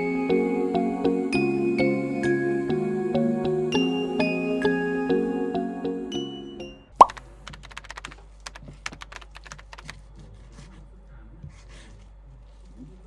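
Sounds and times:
soft music: 0.0 - 7.1
keyboard typing clicks: 7.0 - 10.0.

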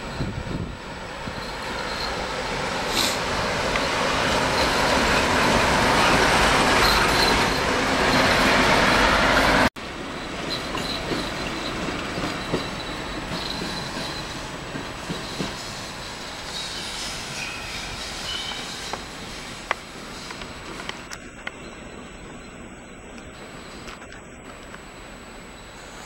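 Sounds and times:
diesel locomotives passing: 0.0 - 26.0
wheel squeal: 1.2 - 9.5, 10.4 - 19.6
wheels clicking over rail joints: 10.4 - 21.8.

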